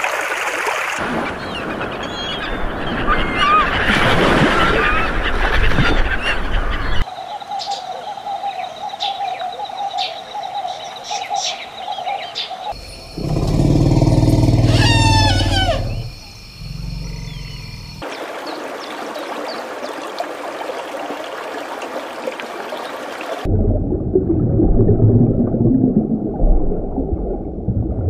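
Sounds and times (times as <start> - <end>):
gulls calling: 1.0 - 7.1, 11.5 - 20.0
small birds chirping: 6.9 - 18.6
elephant rumbling and trumpeting: 13.0 - 18.0.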